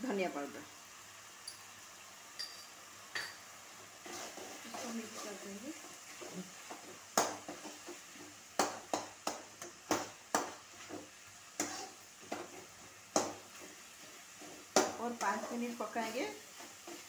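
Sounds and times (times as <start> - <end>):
faint sizzle: 0.0 - 17.0
metal spatula scraping a pan: 4.0 - 8.4, 10.7 - 17.0
spatula knocking against pan: 8.6 - 11.7, 13.1 - 13.4.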